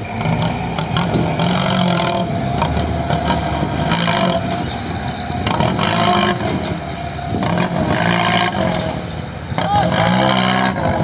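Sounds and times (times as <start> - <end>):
diesel truck engine revving: 0.0 - 11.0.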